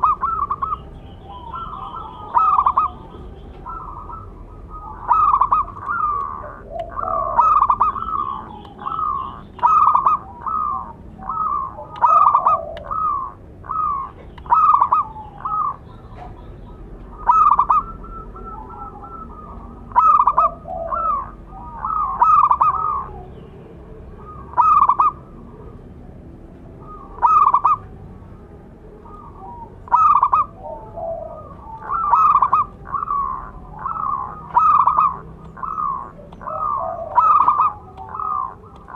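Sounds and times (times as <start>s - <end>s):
dove cooing: 0.0s - 38.9s.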